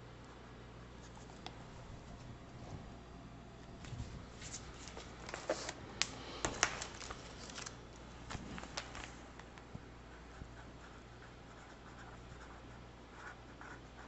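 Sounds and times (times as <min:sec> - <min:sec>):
paper rustling: 0:03.8 - 0:05.8, 0:06.4 - 0:09.3.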